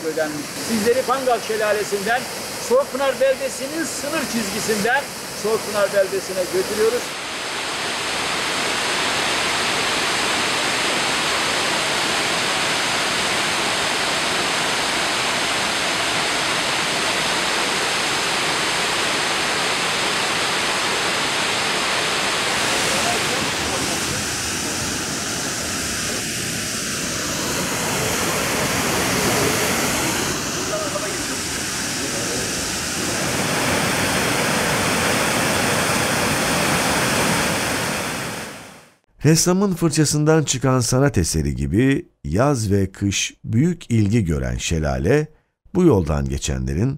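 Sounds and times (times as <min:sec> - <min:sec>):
waterfall rushing water: 0:00.0 - 0:39.0.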